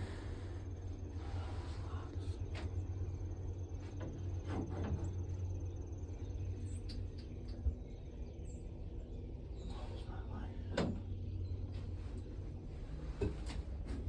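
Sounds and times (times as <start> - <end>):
thin high whine: 0.0 - 8.6
steady low rumble: 0.0 - 14.0
faint bird chirps: 5.0 - 12.3.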